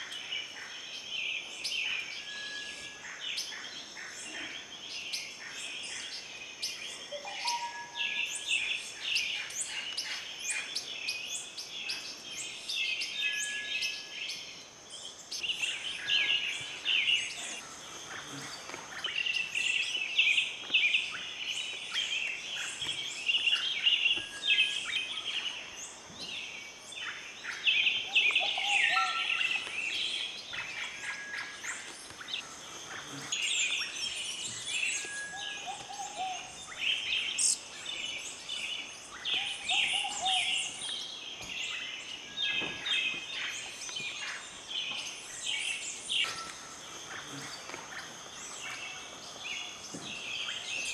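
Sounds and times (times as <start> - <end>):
birds chirping and twittering: 0.0 - 50.9
bird whistled note: 7.2 - 8.0.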